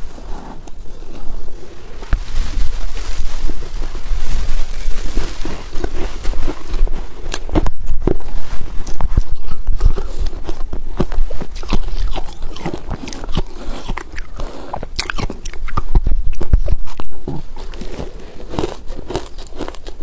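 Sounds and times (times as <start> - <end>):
ice crunching being chewed: 4.6 - 20.0.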